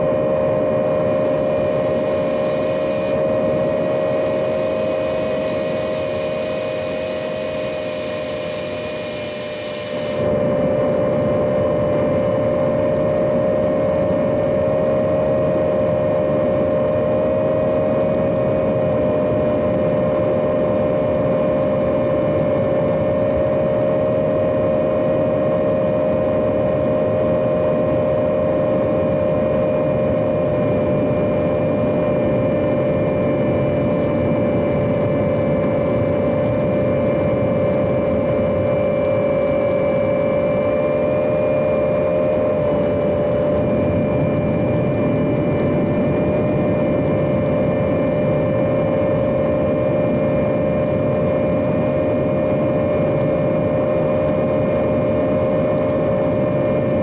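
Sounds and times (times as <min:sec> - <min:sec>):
drone motors whining: 0:00.9 - 0:10.3
rushing hiss: 0:01.0 - 0:10.3.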